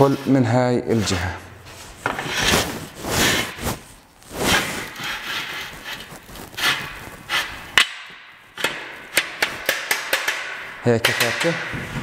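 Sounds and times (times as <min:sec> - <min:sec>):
metal rubbing on metal: 0:00.0 - 0:07.8.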